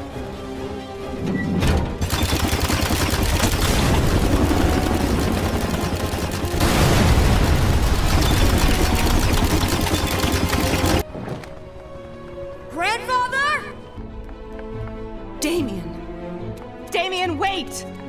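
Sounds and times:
machine gun rapid fire: 2.0 - 11.0
explosions: 6.6 - 9.6.

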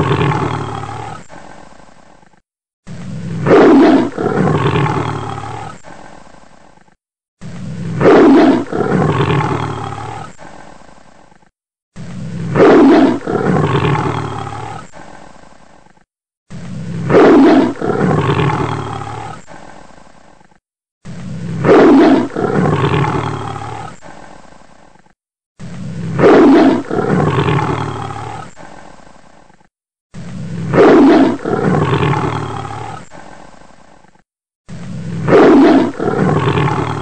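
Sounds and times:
big cat roaring: 0.0 - 1.4, 2.9 - 5.9, 7.6 - 10.5, 12.0 - 15.0, 16.5 - 19.5, 21.2 - 24.1, 25.9 - 28.7, 30.4 - 33.2, 34.8 - 37.0.

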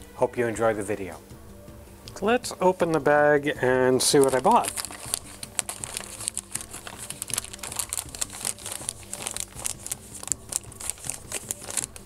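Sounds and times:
paper bag crinkling: 4.0 - 12.0.

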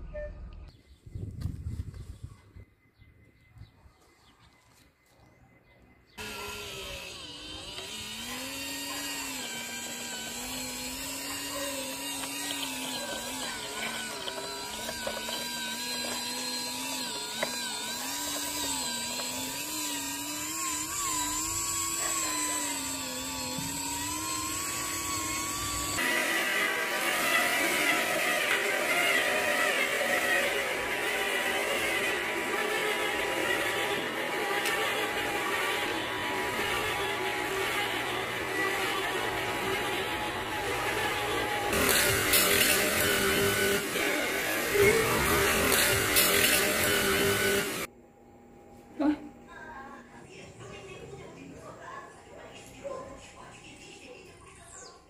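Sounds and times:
electric motor and gearbox whining: 6.2 - 47.9.

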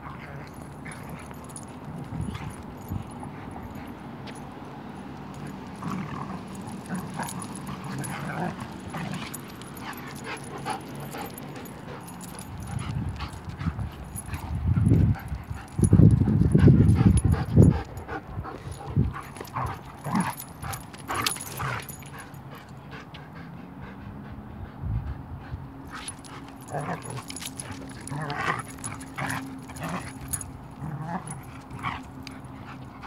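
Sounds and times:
dogs growling and snarling: 0.0 - 3.9, 5.3 - 22.7, 25.2 - 33.0.

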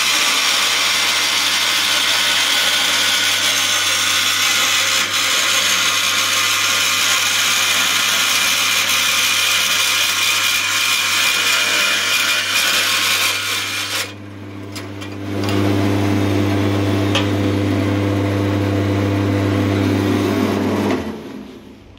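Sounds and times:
bandsaw blade cutting metal: 0.0 - 15.8
bandsaw motor hum: 0.0 - 21.6.

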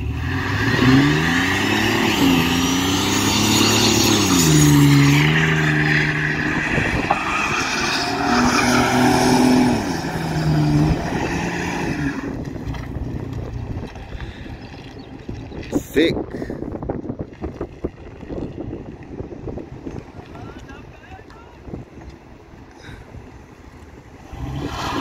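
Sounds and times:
engine revving: 0.0 - 14.4, 24.2 - 25.0
tires squealing on asphalt: 0.0 - 16.0, 24.2 - 25.0.

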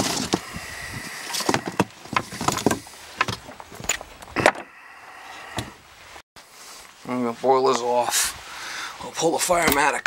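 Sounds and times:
cardboard scraping: 0.0 - 3.7.

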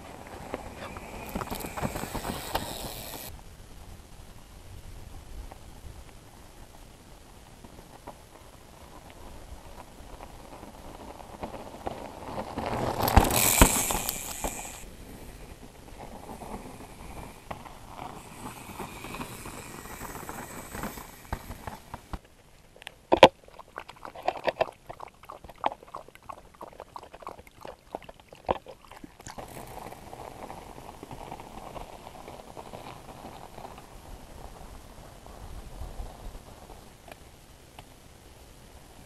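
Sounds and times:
dog lapping water: 23.3 - 29.5.

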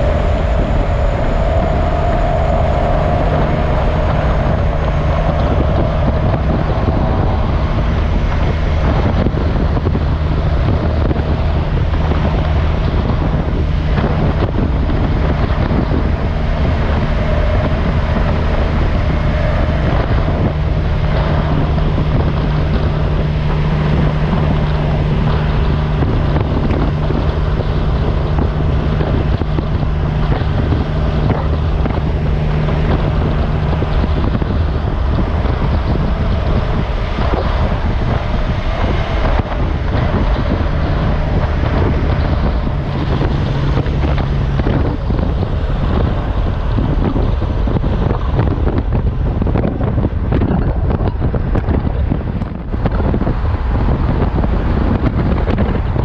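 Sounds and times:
low engine drone: 0.0 - 56.0
road and wind noise: 0.0 - 56.0.

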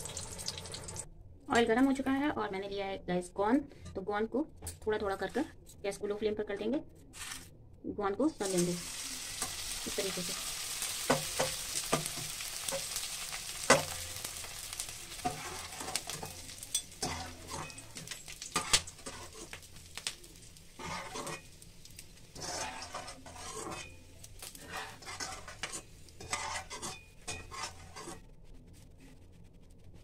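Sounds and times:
gum sizzling in hot ghee: 0.0 - 1.1, 8.4 - 28.5
metal spoon clinking against pan: 15.2 - 19.4, 24.7 - 28.2.

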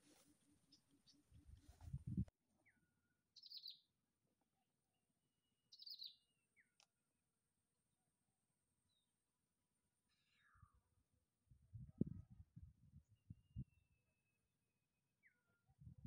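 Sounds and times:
faint bird chirps: 2.6 - 3.9, 5.7 - 6.8, 10.0 - 11.0, 15.2 - 15.9.

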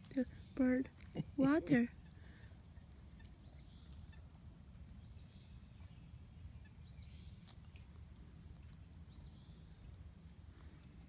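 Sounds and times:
high bird calls: 1.7 - 4.4.

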